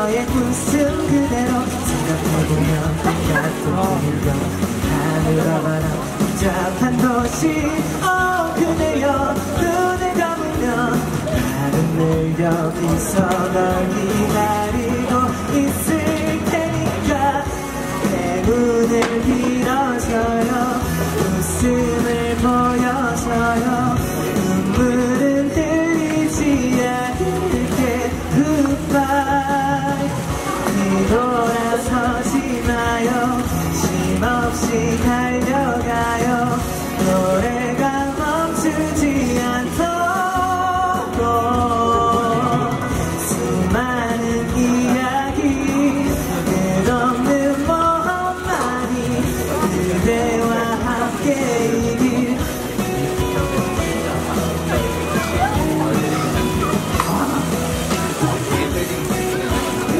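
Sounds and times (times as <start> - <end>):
instrumental backing music: 0.0 - 59.9
pop song with singing: 0.0 - 59.9.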